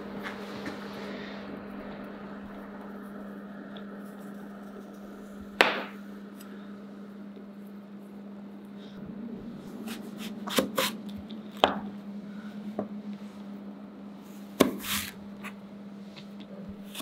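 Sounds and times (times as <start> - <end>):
steady low hum: 0.0 - 17.0
knife cutting eggplant: 9.8 - 11.0, 14.6 - 15.6, 16.8 - 17.0.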